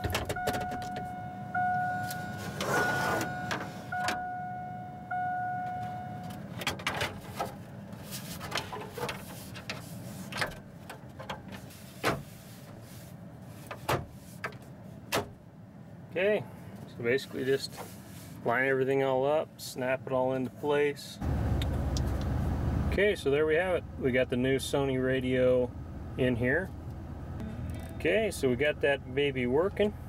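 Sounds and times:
electronic tone: 0:27.4 - 0:28.1.

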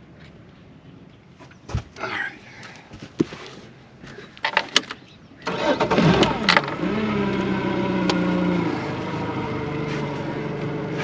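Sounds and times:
outboard engine starting and idling: 0:05.0 - 0:11.0.

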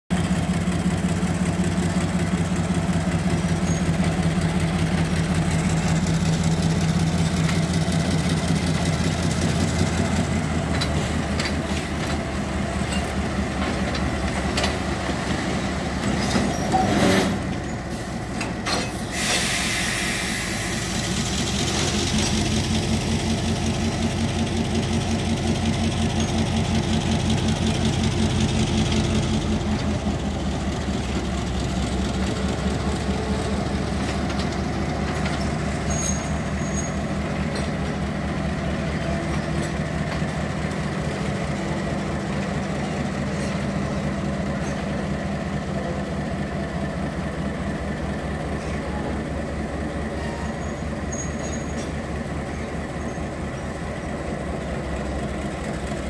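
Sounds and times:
locomotive diesel engine droning: 0:00.1 - 0:56.0
hiss: 0:17.9 - 0:22.1.

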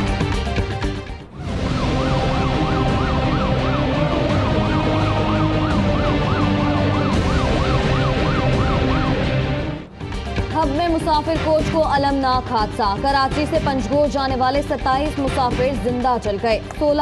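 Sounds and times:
siren yelping: 0:01.4 - 0:09.9.

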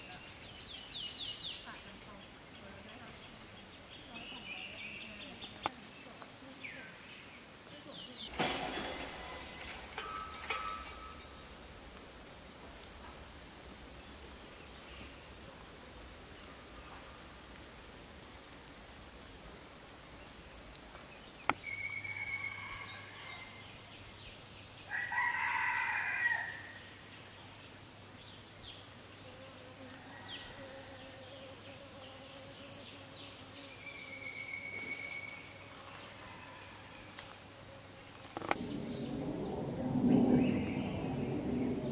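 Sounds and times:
high-pitched insect drone: 0:00.0 - 0:41.9
rooster crowing: 0:21.7 - 0:23.6, 0:24.9 - 0:26.8, 0:29.9 - 0:30.8.

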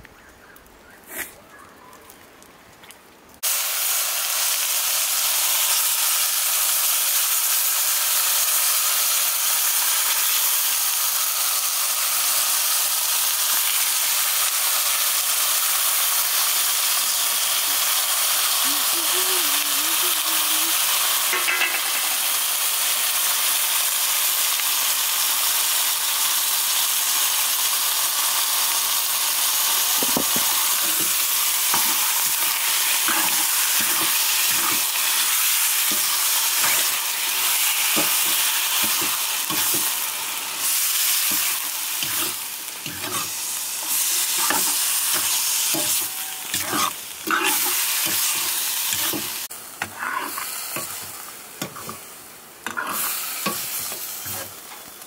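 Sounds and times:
meat sizzling in a wok: 0:03.4 - 0:55.0
metal ladle scraping a pan: 0:41.3 - 0:49.2, 0:49.8 - 0:51.0, 0:52.6 - 0:54.6.

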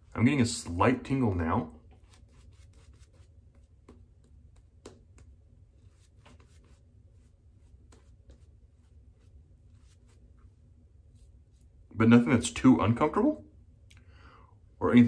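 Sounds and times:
shaving brush lathering face: 0:01.9 - 0:03.9.

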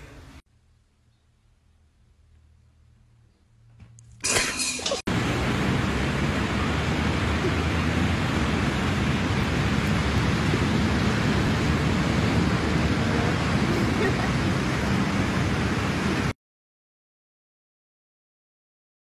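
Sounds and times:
ocean surf: 0:05.1 - 0:16.4
wind on microphone: 0:05.2 - 0:16.3.

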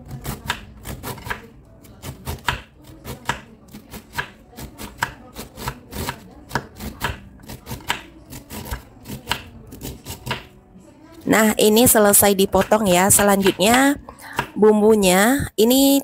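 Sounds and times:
knife slicing cabbage on board: 0:00.0 - 0:10.5.

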